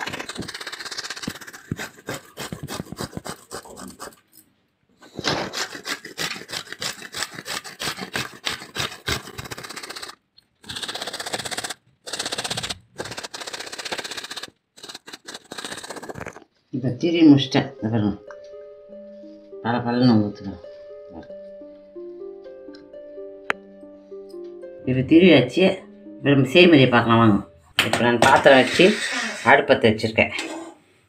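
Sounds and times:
root grated on metal grater: 0:00.0 - 0:04.2, 0:05.2 - 0:16.4, 0:28.2 - 0:29.6.

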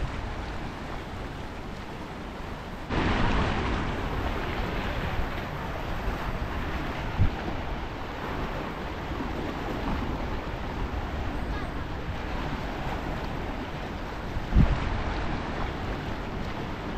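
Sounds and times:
wind buffeting microphone: 0:02.8 - 0:16.9
waves washing against rocks: 0:02.9 - 0:16.9.

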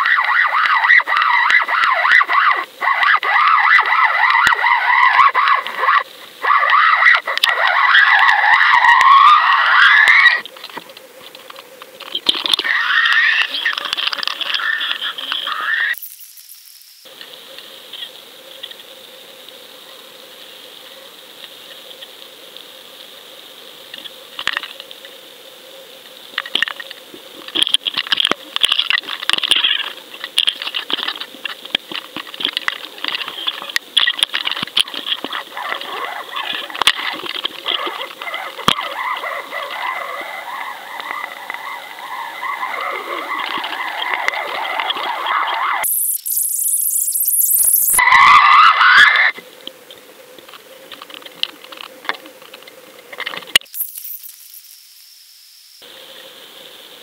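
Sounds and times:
muffled underwater clicking: 0:03.8 - 0:04.6, 0:06.6 - 0:09.2, 0:26.3 - 0:48.0.

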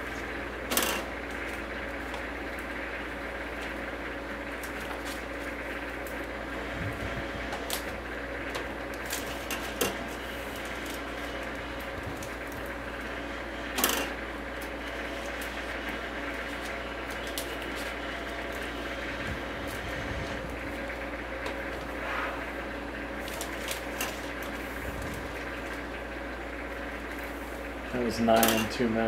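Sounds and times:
machine hum: 0:00.0 - 0:29.0
cellophane film crinkling: 0:08.6 - 0:13.2, 0:14.4 - 0:21.0, 0:22.7 - 0:26.0.

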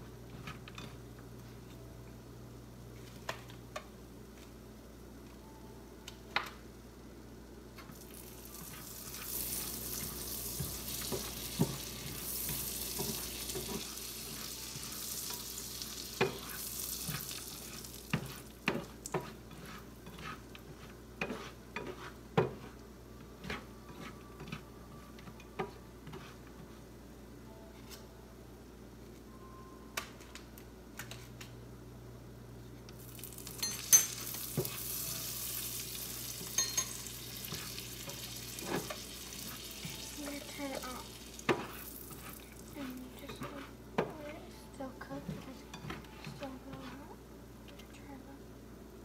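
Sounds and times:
cereal sizzling in a pan: 0:07.9 - 0:22.8, 0:32.9 - 0:43.6
spatula scraping and knocking pan: 0:08.4 - 0:22.8, 0:23.4 - 0:26.8, 0:33.7 - 0:40.6, 0:41.4 - 0:44.3, 0:45.2 - 0:47.2.

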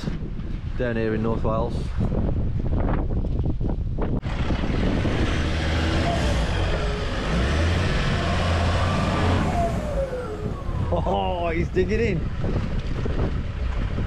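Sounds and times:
wind buffeting microphone: 0:00.0 - 0:14.0
engine revving under load: 0:04.2 - 0:12.5.

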